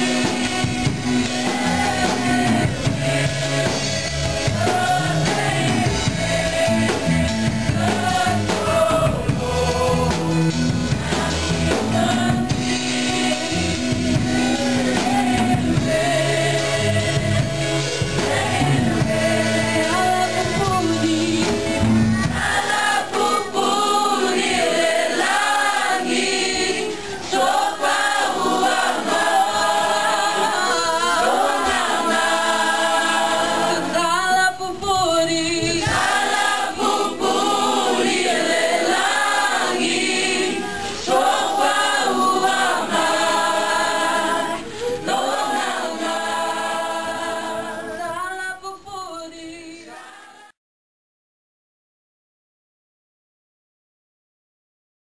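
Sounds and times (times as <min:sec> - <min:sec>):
low musical accompaniment: 0:00.0 - 0:34.2
choir singing gospel song: 0:00.0 - 0:50.6.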